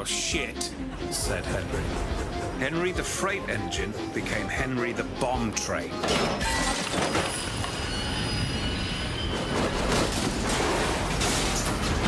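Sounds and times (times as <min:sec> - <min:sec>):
freight train rumble: 0:00.0 - 0:06.0
train wheels squealing: 0:06.4 - 0:10.2.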